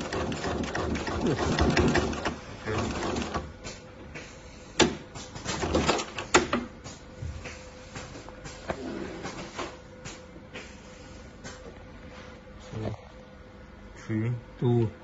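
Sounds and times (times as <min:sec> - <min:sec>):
sewing machine stitching: 0:00.0 - 0:03.5.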